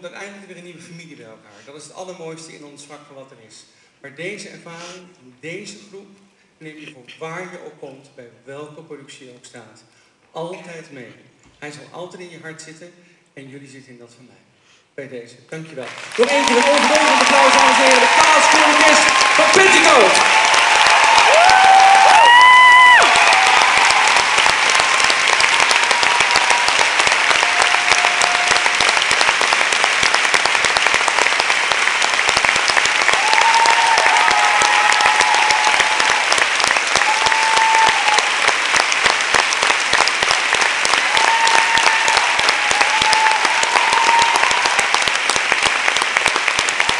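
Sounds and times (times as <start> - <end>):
audience applauding: 15.8 - 46.9.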